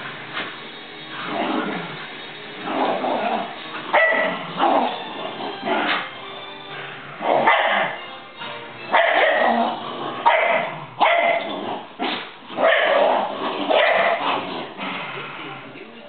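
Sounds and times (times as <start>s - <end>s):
dogs barking: 3.4s - 5.1s, 7.2s - 8.0s, 8.9s - 14.8s.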